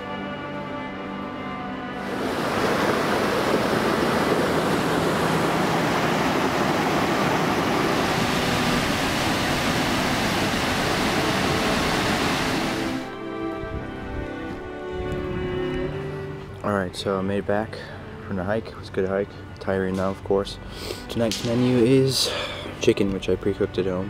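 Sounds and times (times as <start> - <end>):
background music: 0.0 - 24.0
waterfall rushing: 2.0 - 13.2.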